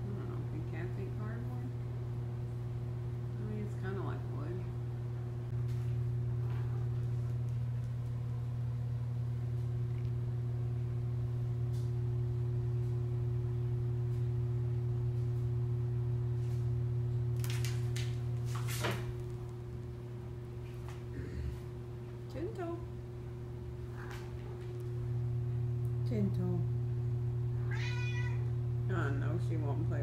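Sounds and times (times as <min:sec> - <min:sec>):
low mechanical hum: 0:00.0 - 0:30.0.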